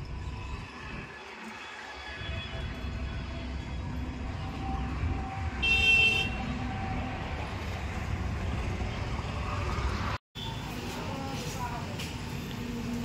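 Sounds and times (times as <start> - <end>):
road traffic rumble: 0.0 - 13.0
vehicle horn honking: 5.6 - 6.6.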